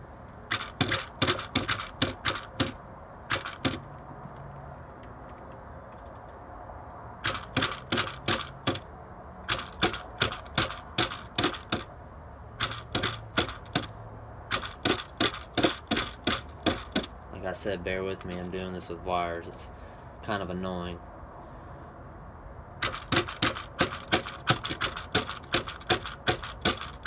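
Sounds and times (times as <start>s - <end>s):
toy car clacking on glass: 0.5s - 3.9s, 7.2s - 11.9s, 12.6s - 13.9s, 14.5s - 17.2s, 22.8s - 27.0s.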